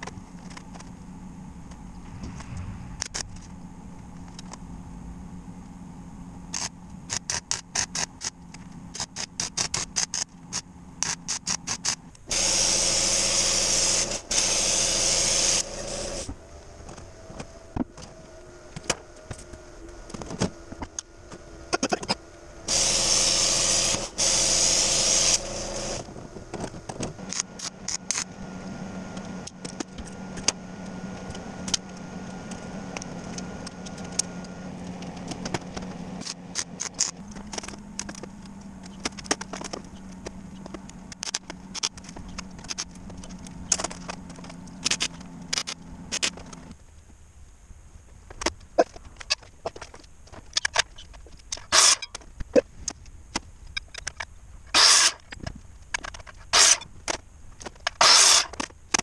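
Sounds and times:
steady low hum: 0.0 - 59.0
loud hiss bursts: 12.3 - 16.3, 22.7 - 26.1.

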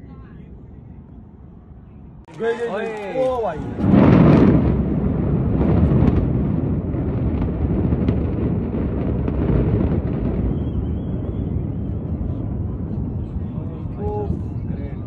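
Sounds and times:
buildings collapsing rumble: 2.3 - 15.0.

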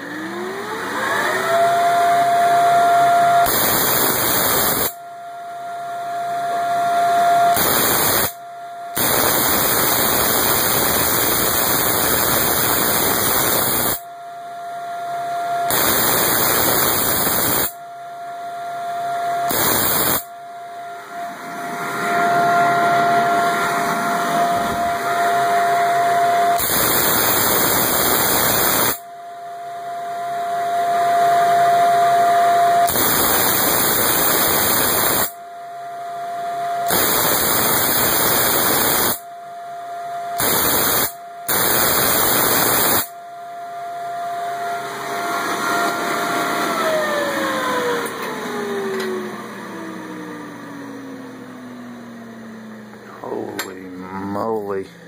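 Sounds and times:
steady whine: 0.0 - 55.0
tesla coil buzzing crackle: 3.4 - 5.0, 7.5 - 14.1, 15.6 - 17.8, 19.4 - 20.4, 26.5 - 29.1, 32.8 - 35.4, 36.8 - 39.3, 40.4 - 43.2.

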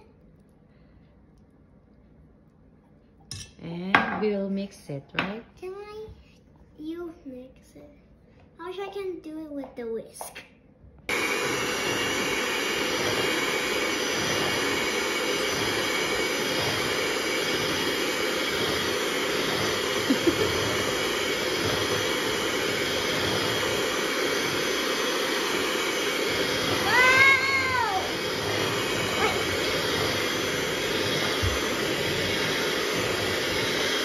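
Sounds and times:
electric hand mixer whisking: 11.1 - 34.0
rising-and-falling cry: 26.6 - 28.4.

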